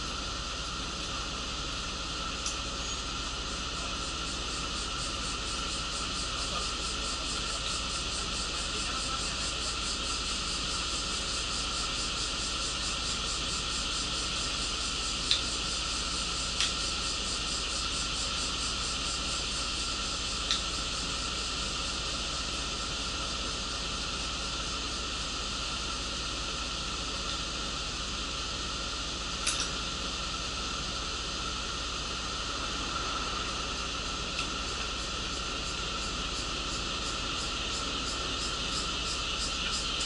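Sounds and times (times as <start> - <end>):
air-conditioning fans hissing: 0.0 - 40.0
bus engine idling: 0.0 - 40.0.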